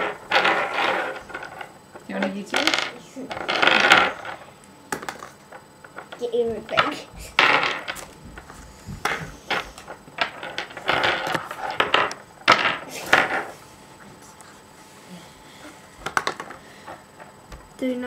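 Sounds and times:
plastic tokens clattering on table: 0.0s - 13.5s, 16.0s - 17.0s.

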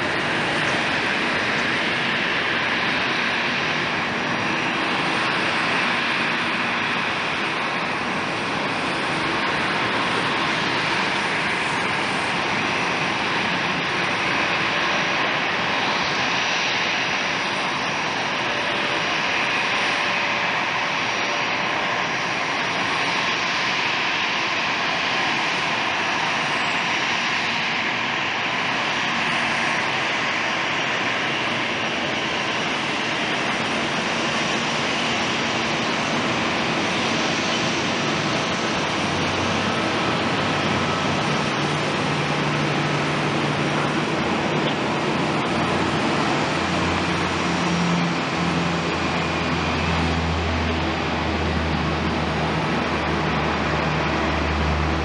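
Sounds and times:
faint engine whine: 0.0s - 55.0s
turboprop engines drone: 0.0s - 55.0s.

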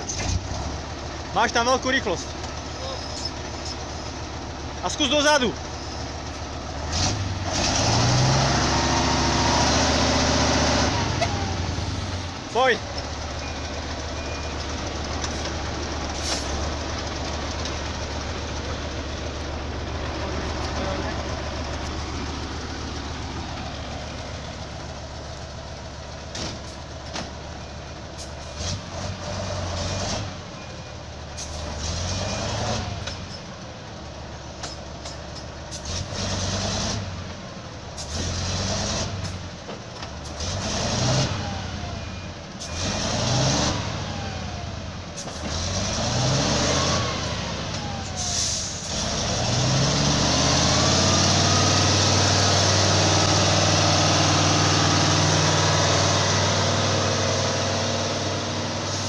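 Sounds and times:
diesel truck engine revving: 0.0s - 33.3s, 35.6s - 59.0s
truck clunks and knocks: 26.2s - 27.6s, 34.5s - 37.0s, 38.0s - 40.6s.

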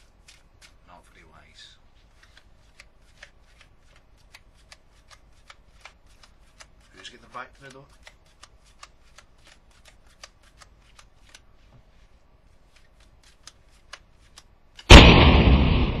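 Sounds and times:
loud gunshot bang: 14.9s - 16.0s.

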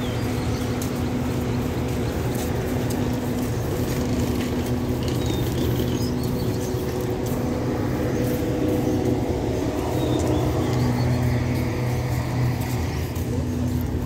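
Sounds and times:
diesel train engines idling: 0.0s - 14.0s.

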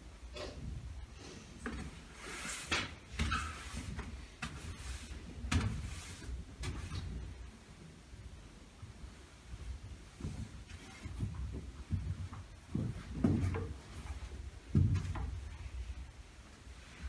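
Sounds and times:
broom sweeping floor: 1.2s - 7.5s.

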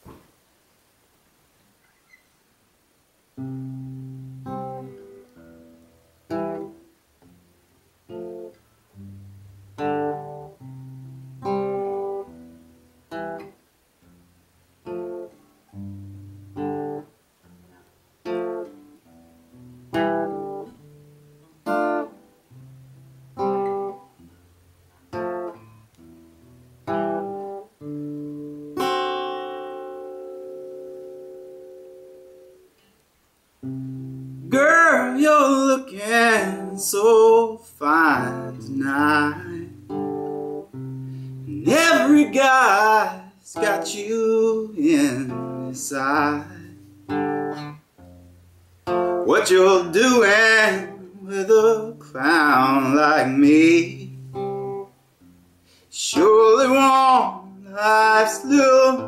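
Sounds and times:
acoustic guitar chords ringing: 3.4s - 33.0s, 33.6s - 59.0s.

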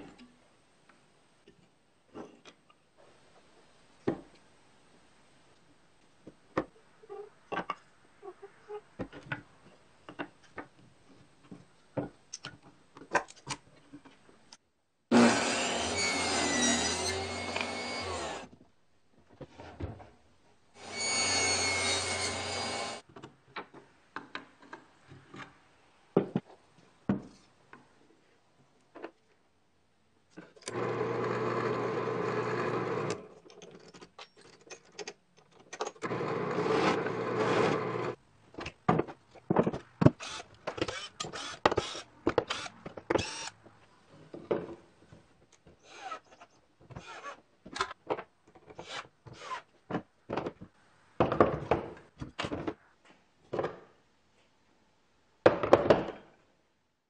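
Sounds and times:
power tool running: 20.8s - 23.0s
cordless drill driving screws: 40.2s - 43.5s.

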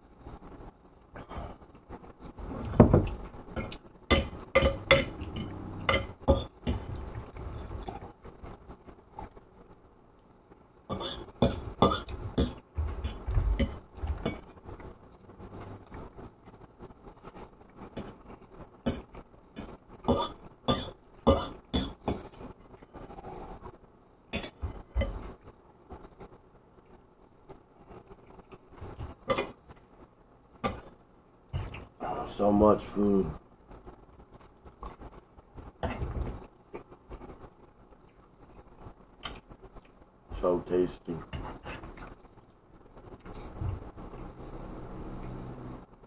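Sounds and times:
cutlery clinking against a plate: 3.6s - 6.9s, 10.9s - 14.5s, 18.9s - 22.4s.

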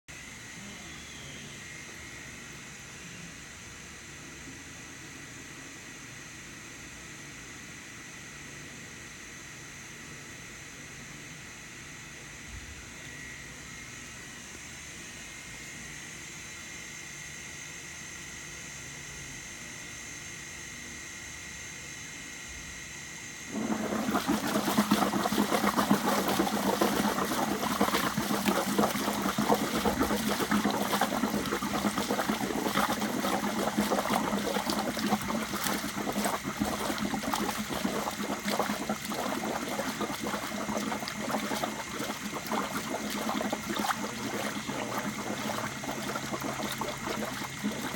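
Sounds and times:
gas bubbling through liquid: 23.5s - 47.9s.

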